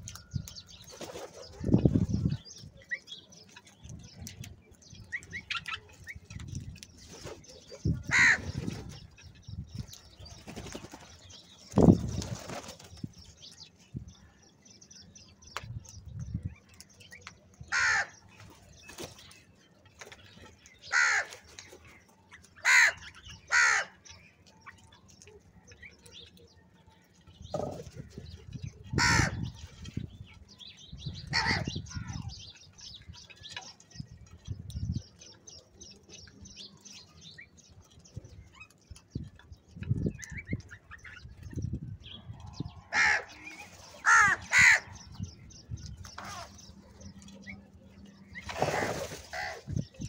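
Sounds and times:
wings flapping: 0.9s - 2.0s, 10.3s - 13.1s, 48.4s - 49.6s
crows cawing harshly: 8.1s - 8.5s, 17.7s - 18.2s, 20.9s - 21.4s, 22.6s - 24.0s, 29.0s - 29.4s, 31.3s - 31.7s, 42.9s - 45.0s.

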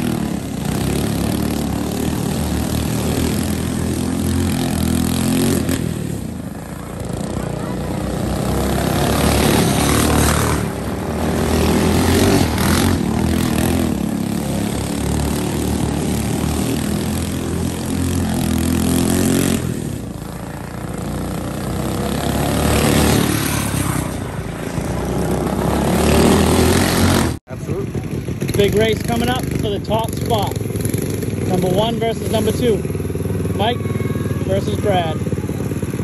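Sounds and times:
go-kart engines revving: 0.0s - 36.0s.

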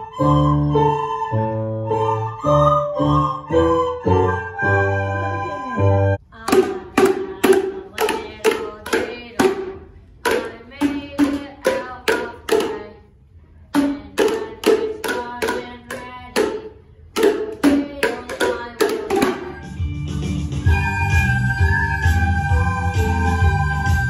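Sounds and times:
boomwhackers playing a melody: 13.7s - 24.0s.

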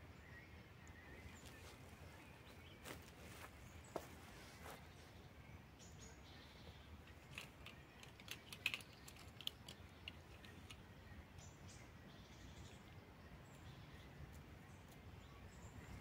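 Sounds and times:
faint sharp clicks: 7.1s - 10.8s.

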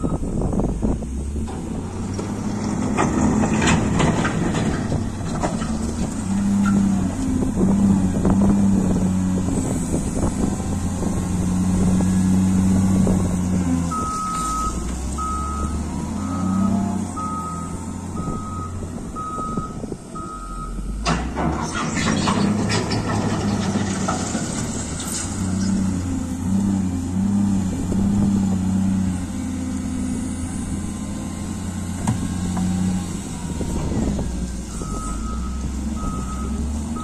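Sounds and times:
reversing alarm beeping: 0.0s - 0.3s, 13.9s - 20.9s, 34.7s - 37.0s
loader diesel engine under load: 0.0s - 37.0s.

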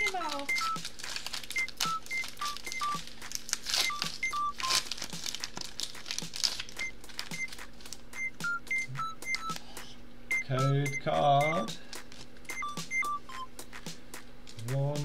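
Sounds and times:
backing track with clicks and beeps: 0.0s - 4.9s, 6.7s - 15.0s
foil wrapper crinkling and tearing: 0.0s - 8.2s, 11.9s - 12.4s.

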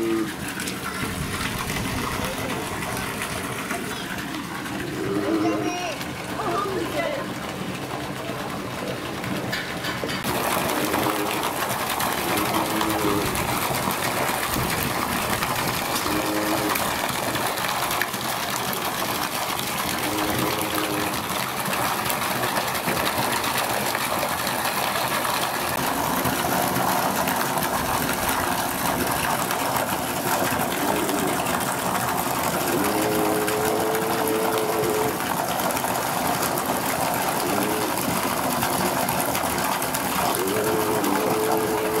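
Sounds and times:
seal vocalizations: 0.0s - 6.1s, 10.2s - 17.8s, 19.7s - 21.4s, 26.0s - 42.0s
water rushing and splashing: 0.0s - 42.0s.

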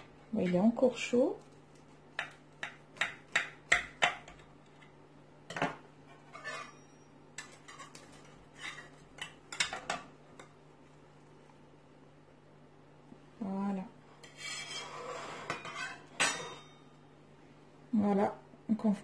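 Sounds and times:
metal utensils scraping on glass: 6.3s - 7.0s, 14.2s - 16.6s.

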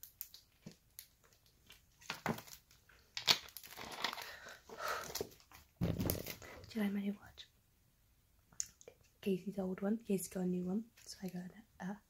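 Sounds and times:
plastic bottle crinkling: 0.0s - 6.6s.

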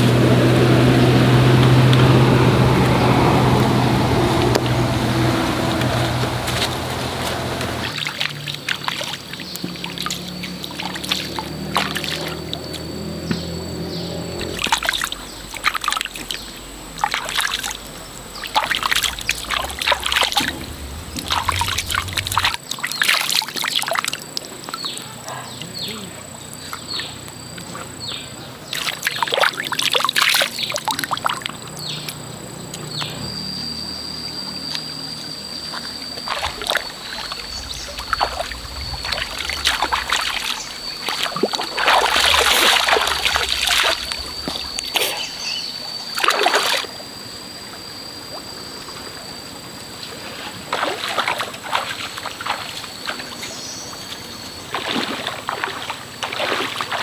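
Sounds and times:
stream water splashing: 0.0s - 25.1s, 26.4s - 33.1s, 34.8s - 57.0s
thin high whine: 10.9s - 22.6s, 33.1s - 50.6s.

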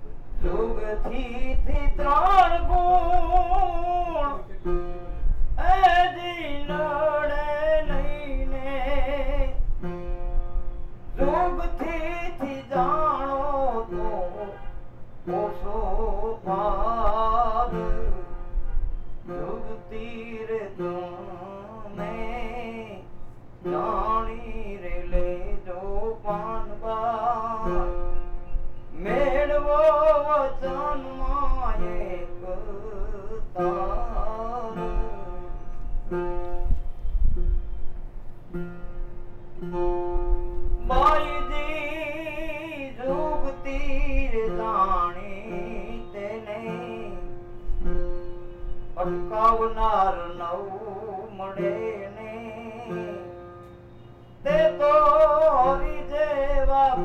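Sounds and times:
person singing devotional song: 0.4s - 4.6s.

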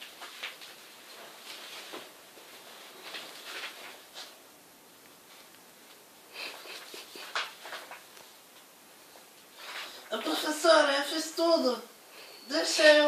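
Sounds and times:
paper rustling: 0.0s - 4.4s, 5.2s - 8.7s, 9.4s - 10.4s.

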